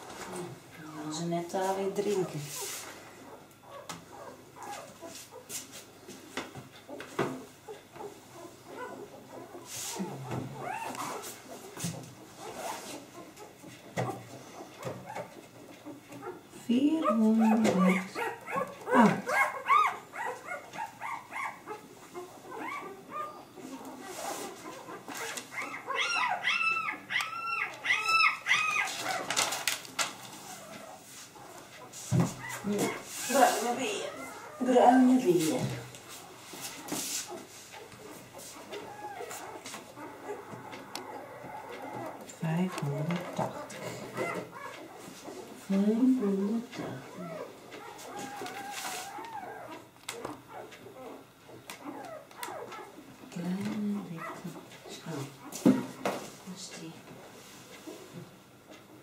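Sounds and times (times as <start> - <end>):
puppies whimpering and squeaking: 1.1 - 5.5, 6.8 - 56.1
puppy crying high-pitched squeals: 17.1 - 21.8, 25.2 - 29.2
paper rustling: 28.8 - 30.9.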